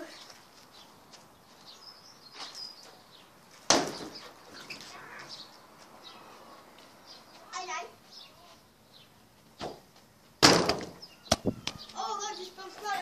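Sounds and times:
sharp knock: 10.4s - 11.5s
high bird chirps: 11.0s - 12.7s.

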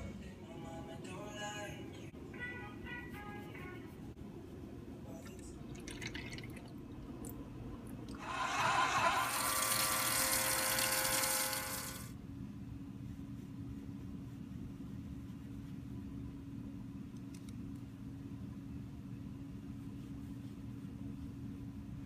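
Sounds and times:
motor whine: 8.2s - 12.1s.

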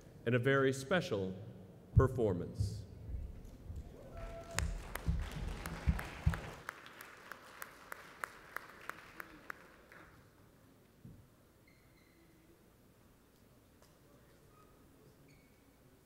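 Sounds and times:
audience applause: 3.9s - 10.2s.

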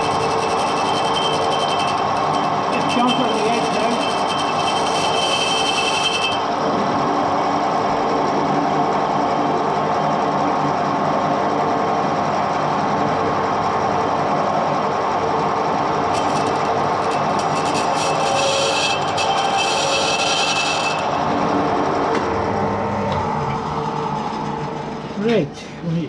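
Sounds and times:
cutting tool screeching on metal: 0.0s - 6.6s, 16.1s - 21.3s
metal lathe gear whine: 0.0s - 25.5s.

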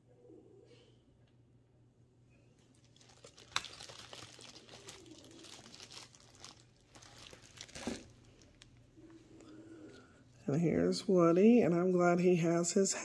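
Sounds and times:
plastic packaging crinkling: 2.6s - 8.9s.

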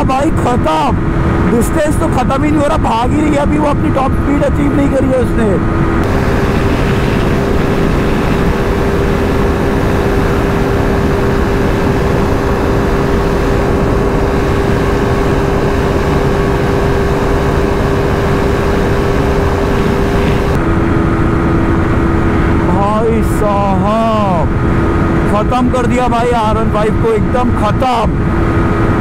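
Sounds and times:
motorbike engine at speed: 0.0s - 29.0s
wind noise rushing: 3.8s - 25.5s.

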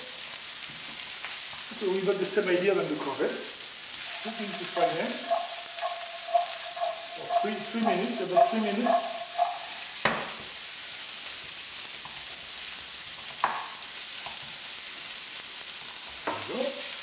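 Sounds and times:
vegetables sizzling in frying pan: 0.0s - 17.0s
wooden spatula knocks: 4.1s - 10.4s.

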